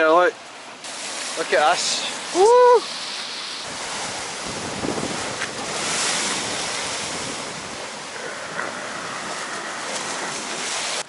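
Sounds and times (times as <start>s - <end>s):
wind rumbling on microphone: 2.3s - 11.0s.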